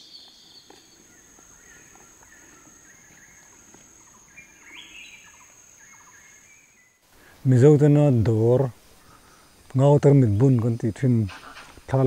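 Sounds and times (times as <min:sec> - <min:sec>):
birds chattering: 0:00.0 - 0:07.0
high insect drone: 0:00.0 - 0:12.0
insect buzz: 0:00.0 - 0:12.0.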